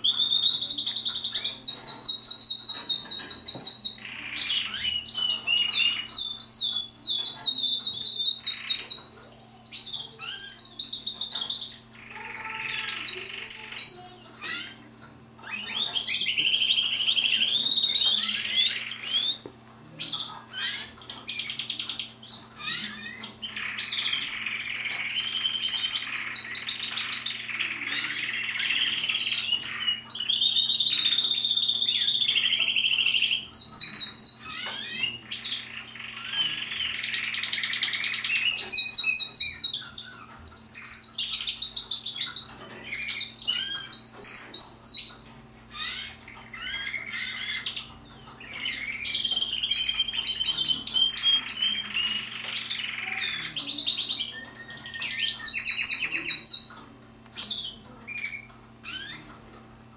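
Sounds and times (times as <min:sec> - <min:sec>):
canaries singing trills: 0:00.0 - 0:59.9.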